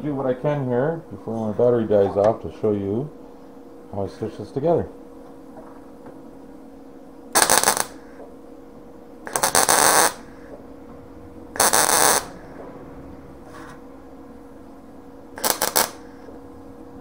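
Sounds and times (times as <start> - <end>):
steady low hum: 0.0 - 17.0
welding bursts: 7.3 - 8.1, 9.3 - 10.3, 11.6 - 12.4, 15.4 - 16.3.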